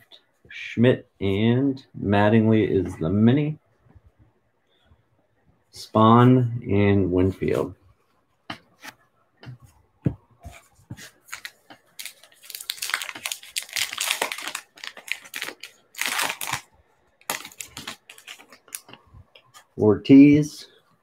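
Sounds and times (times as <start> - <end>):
card wrapper tearing and crinkling: 11.3 - 18.9.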